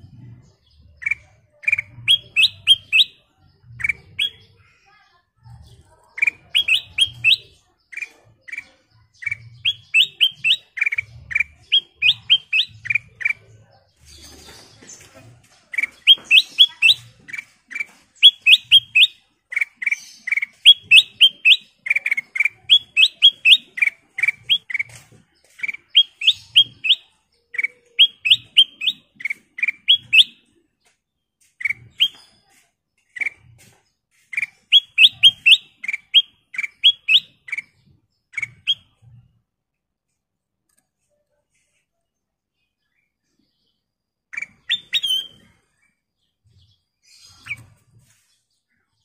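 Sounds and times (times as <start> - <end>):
bird whistling song: 0.1 - 4.5, 6.2 - 13.5, 15.7 - 30.6, 31.4 - 39.1, 44.3 - 45.7, 47.0 - 48.3.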